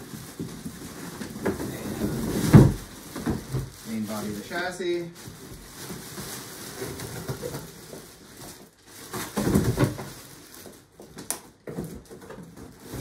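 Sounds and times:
cardboard box scraping: 0:00.0 - 0:03.7
plastic wrap rustling: 0:00.0 - 0:13.0.

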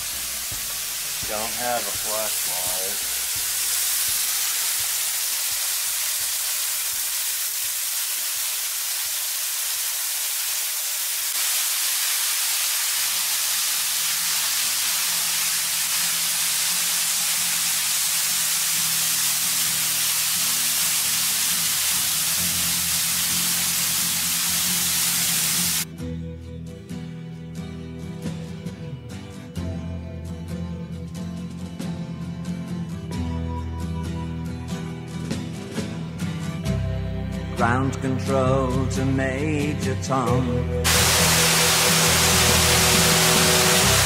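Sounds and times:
waterfall rushing: 0:00.0 - 0:25.8, 0:40.9 - 0:44.0.

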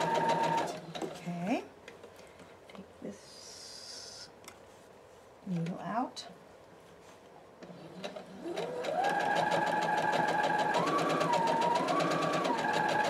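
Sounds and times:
sewing machine running: 0:00.0 - 0:00.9, 0:07.6 - 0:13.0.

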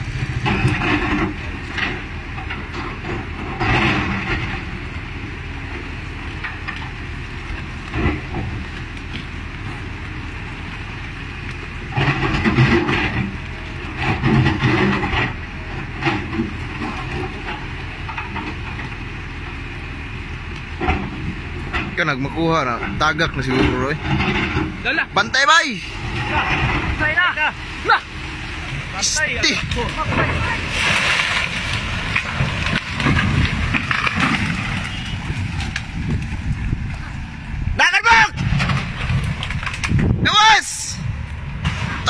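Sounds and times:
excavator diesel engine running: 0:00.0 - 0:42.0.

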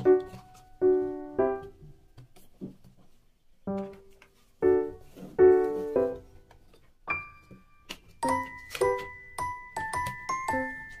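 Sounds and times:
slow piano chords: 0:00.0 - 0:02.1, 0:03.7 - 0:11.0.

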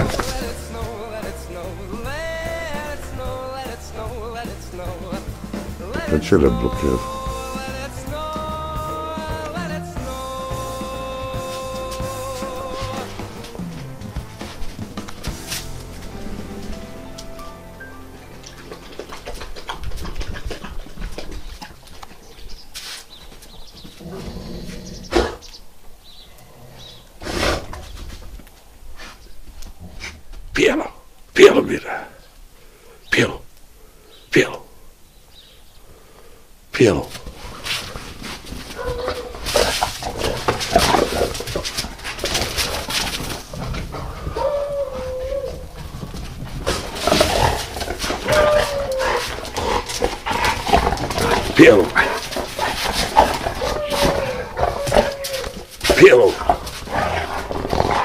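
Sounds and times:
low rustling: 0:00.0 - 0:31.4, 0:34.8 - 0:58.0
scuffling in snow: 0:14.3 - 0:16.9, 0:22.5 - 0:23.2, 0:37.1 - 0:43.6
dog making noise: 0:38.6 - 0:58.0.

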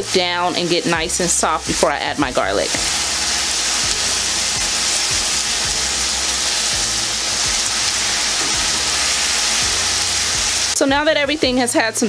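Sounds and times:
vegetables sizzling in a pan: 0:00.0 - 0:10.9.

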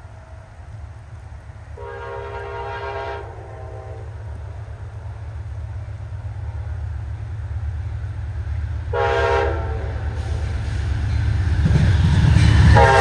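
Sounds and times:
rain hiss: 0:00.0 - 0:13.0
train rumbling: 0:00.0 - 0:13.0
locomotive air horn blast: 0:01.8 - 0:04.2, 0:08.9 - 0:10.6, 0:12.8 - 0:13.0.

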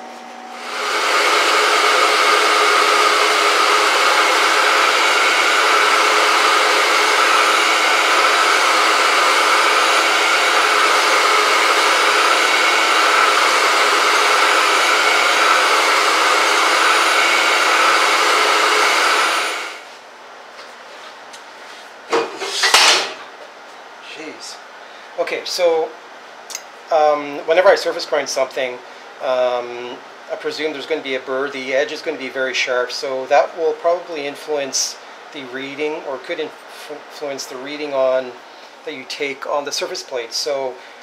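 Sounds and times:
surface grinder whining: 0:00.0 - 0:19.9.

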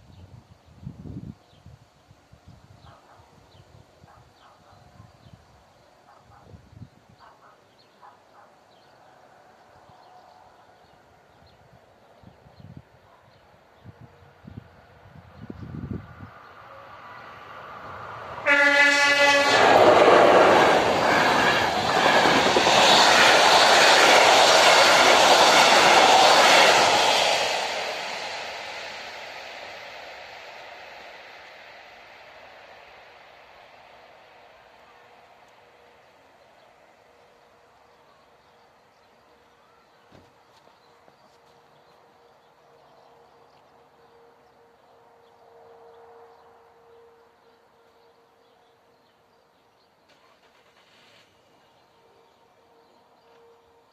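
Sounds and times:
faint bird or insect sounds: 0:00.0 - 0:18.4, 0:27.7 - 0:53.9
train coaches running past: 0:02.9 - 0:53.9
train horn blast: 0:18.4 - 0:21.8, 0:44.0 - 0:48.9, 0:51.8 - 0:53.9
wheels clacking over rails: 0:19.6 - 0:26.8.

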